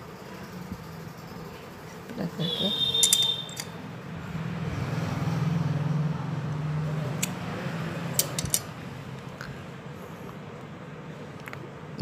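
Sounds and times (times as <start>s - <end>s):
sharp clicks: 3.0s - 3.8s.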